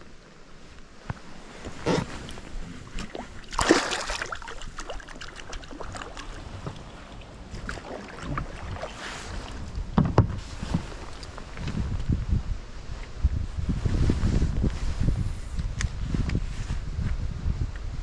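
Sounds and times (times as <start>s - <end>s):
water splashing: 1.7s - 9.8s.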